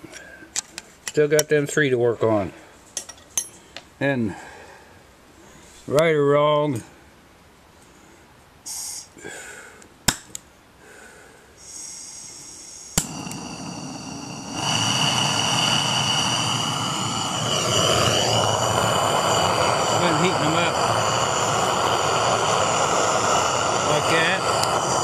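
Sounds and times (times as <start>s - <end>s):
gas hissing: 11.6s - 25.0s
torch flame burning: 11.6s - 25.0s
gas torch clicks: 12.9s - 25.0s.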